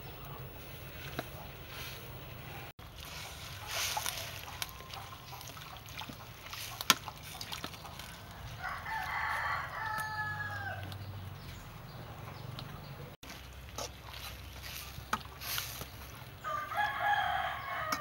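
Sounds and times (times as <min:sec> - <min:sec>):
rooster crowing: 0:08.3 - 0:10.9, 0:16.4 - 0:18.0.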